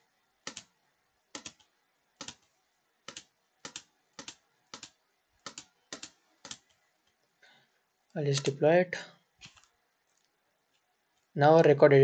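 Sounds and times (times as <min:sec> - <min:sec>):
computer mouse button clicking: 0:03.1 - 0:06.7.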